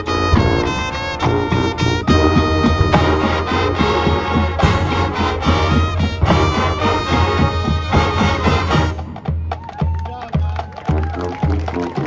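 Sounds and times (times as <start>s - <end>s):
low bass line: 0.0s - 8.9s
drum hits: 0.0s - 11.0s
marching band swing tune: 0.0s - 12.0s.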